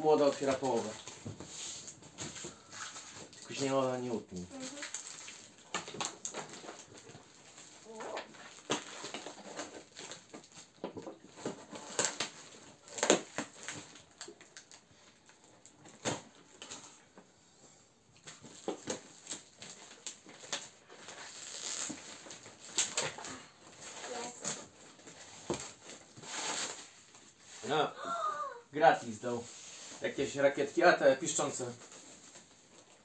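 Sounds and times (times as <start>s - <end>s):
cardboard rustling and scraping: 5.8s - 14.0s, 18.3s - 27.8s.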